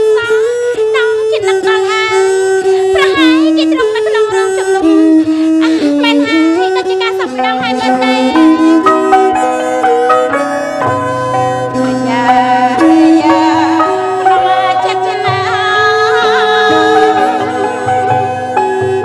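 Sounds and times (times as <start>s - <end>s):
traditional ensemble music: 0.0s - 19.0s
woman singing: 5.6s - 9.0s, 11.8s - 18.3s.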